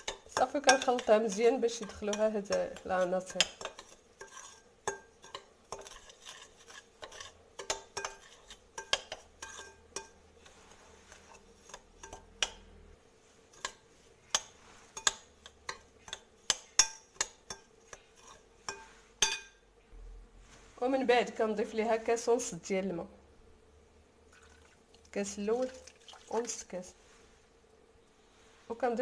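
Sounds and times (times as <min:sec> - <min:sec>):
spoon scraping a glass bowl: 0:00.0 - 0:12.3, 0:17.1 - 0:19.5.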